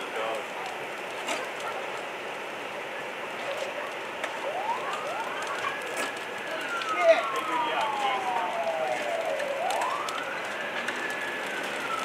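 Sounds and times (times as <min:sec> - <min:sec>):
fire crackles: 0:00.0 - 0:12.0
fire roaring: 0:00.0 - 0:12.0
siren wailing: 0:03.5 - 0:12.0.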